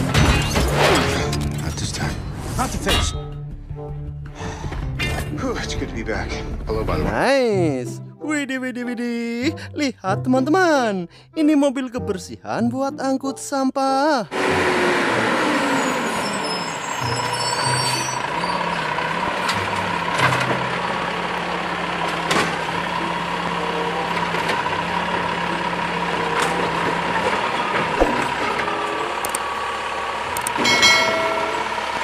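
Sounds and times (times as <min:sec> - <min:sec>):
garbage truck whining: 0:14.3 - 0:32.0
trash cart clattering: 0:15.9 - 0:29.2.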